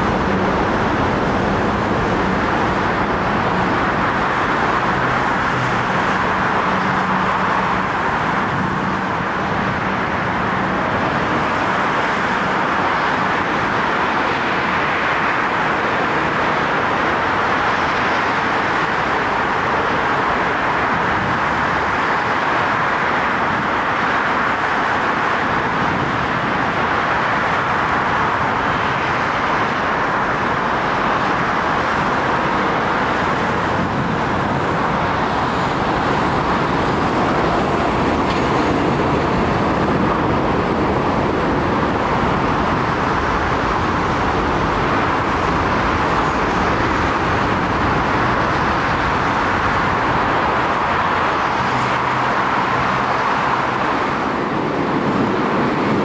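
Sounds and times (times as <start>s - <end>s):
passing traffic: 0.0s - 56.0s
electric train passing: 27.0s - 56.0s.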